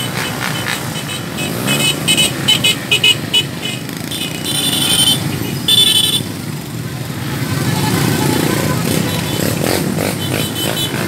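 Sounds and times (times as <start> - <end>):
motorcycle engines running: 0.0 - 11.0.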